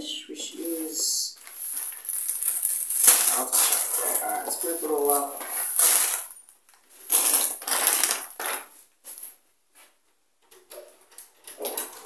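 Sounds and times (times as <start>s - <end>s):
plastic packaging crinkling: 0.8s - 9.3s.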